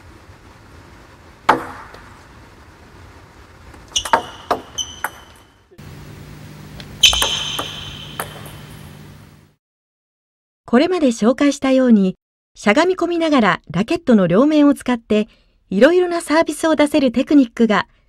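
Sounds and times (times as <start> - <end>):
ball bouncing on table: 1.5 - 2.1, 4.0 - 5.5, 7.0 - 8.9
racket striking ball: 1.5 - 2.2, 3.9 - 5.5, 6.8 - 9.0.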